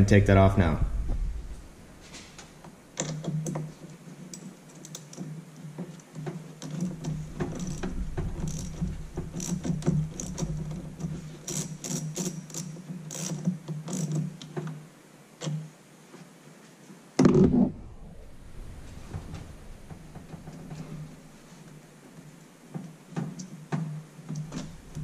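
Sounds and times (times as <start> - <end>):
socket ratchet clicking: 6.6 - 14.3.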